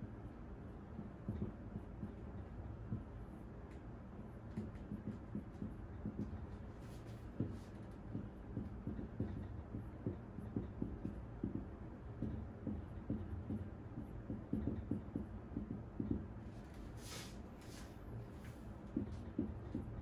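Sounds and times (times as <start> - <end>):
marker writing on whiteboard: 4.5 - 20.0.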